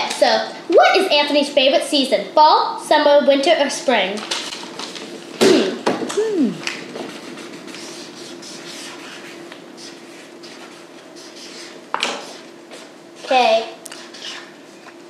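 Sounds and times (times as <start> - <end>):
pens scratching on paper: 7.0 - 14.5.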